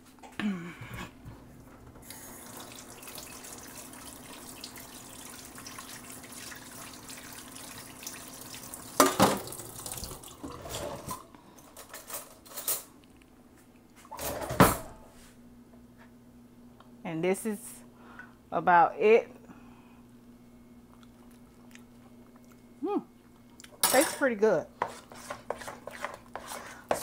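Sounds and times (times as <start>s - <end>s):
kitchen tap running: 2.0s - 11.3s.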